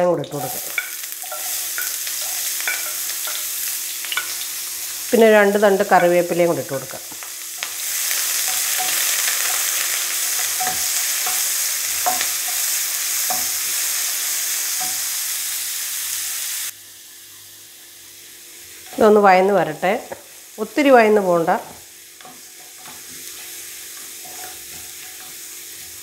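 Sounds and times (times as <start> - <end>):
food sizzling in oil: 0.0 - 26.0
wooden spatula scraping pan: 22.3 - 26.0.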